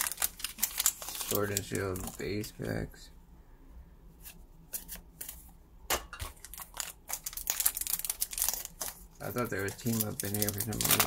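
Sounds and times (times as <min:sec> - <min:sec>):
foil wrappers crinkling: 0:00.0 - 0:02.5, 0:06.2 - 0:11.0.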